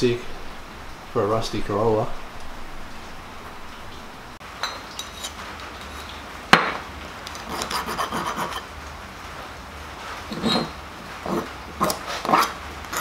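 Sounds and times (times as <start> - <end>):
hand tool filing metal: 7.5 - 8.7, 10.3 - 13.0.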